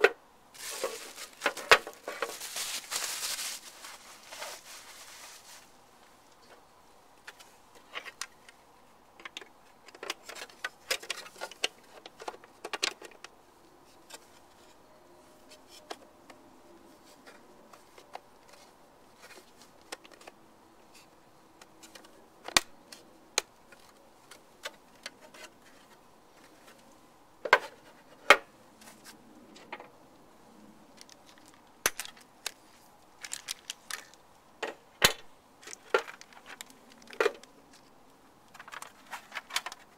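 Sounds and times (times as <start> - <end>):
plastic parts clicking and knocking: 9.2 - 13.4, 19.2 - 20.4, 31.0 - 32.6, 33.2 - 37.9, 38.5 - 39.9.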